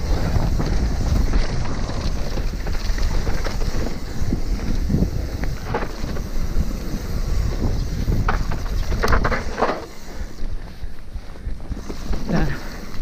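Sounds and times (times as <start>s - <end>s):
bike rattling: 0.0s - 13.0s
tyres crunching over dirt: 0.0s - 13.0s
wind buffeting microphone: 0.0s - 13.0s.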